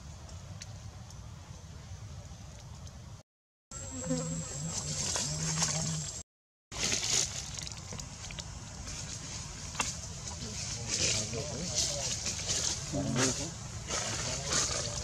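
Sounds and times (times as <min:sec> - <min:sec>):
insect buzzing: 0:03.7 - 0:06.2
high insect whine: 0:03.8 - 0:06.2.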